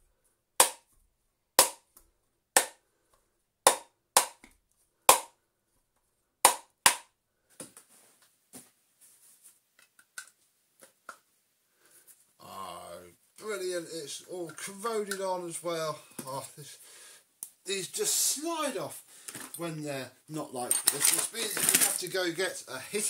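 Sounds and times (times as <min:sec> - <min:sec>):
light clicks and scraping: 0:20.6 - 0:22.0.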